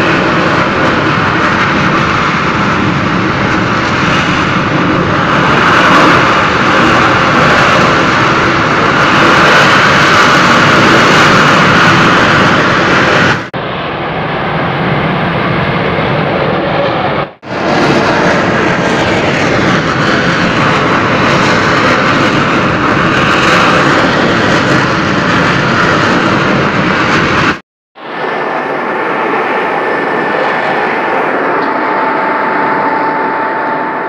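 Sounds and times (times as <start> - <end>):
roar of fire and gas: 0.0 - 34.0
thin steady tone: 28.1 - 34.0.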